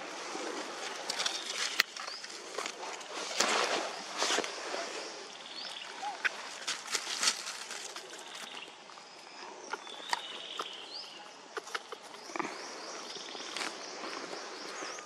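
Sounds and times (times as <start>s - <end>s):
rustles on dry ground: 0.0s - 15.0s
small birds chirping: 4.7s - 15.0s.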